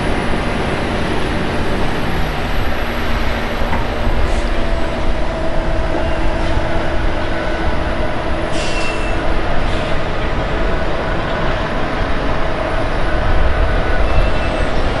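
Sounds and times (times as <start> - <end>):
diesel tractor engines rumbling: 0.0 - 15.0
short high squeal: 8.5 - 10.0, 14.0 - 15.0.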